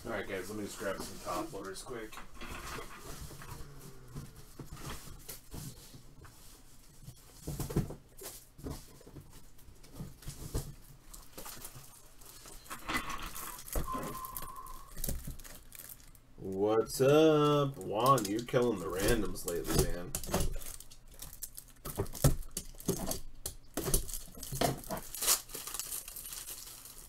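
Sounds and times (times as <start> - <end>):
steady beep: 13.9 - 15.0.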